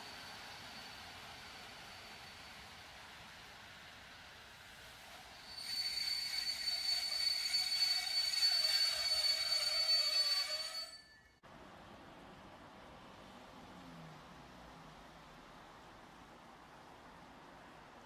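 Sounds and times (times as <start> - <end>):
train wheels and brakes squealing: 0.0 - 11.4.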